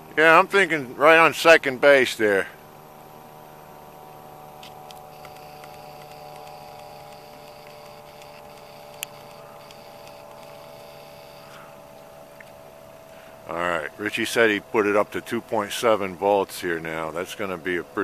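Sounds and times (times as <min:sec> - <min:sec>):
steady mechanical hum: 0:00.0 - 0:18.0
faint ticks: 0:04.6 - 0:13.2.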